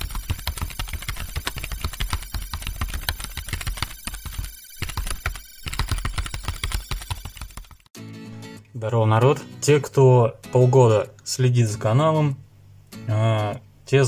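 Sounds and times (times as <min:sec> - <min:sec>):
rapid irregular clicks: 0:00.0 - 0:07.9.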